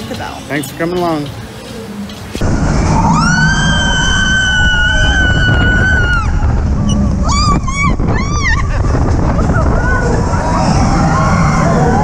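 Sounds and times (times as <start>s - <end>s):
roller coaster train moving: 2.2s - 12.0s
wind rushing: 2.4s - 12.0s
riders screaming: 2.6s - 12.0s.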